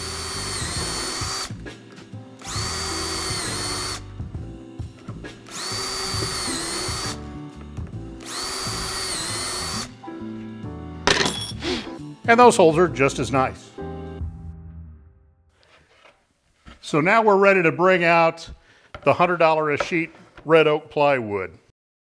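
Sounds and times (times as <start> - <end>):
cordless drill whining: 0.0 - 1.6, 2.4 - 4.1, 5.4 - 10.0.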